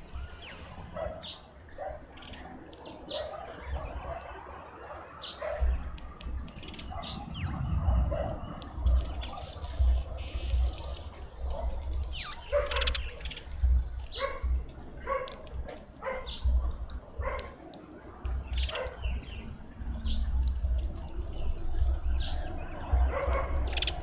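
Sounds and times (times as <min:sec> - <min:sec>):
small birds chirping: 0:00.0 - 0:24.0
low gusting rumble: 0:05.6 - 0:24.0.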